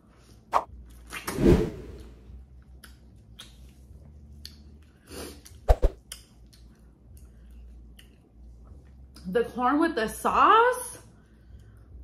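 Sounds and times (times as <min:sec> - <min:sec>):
person chewing corn: 0:02.6 - 0:09.0
wet mouth clicks: 0:02.8 - 0:03.8, 0:05.4 - 0:07.3.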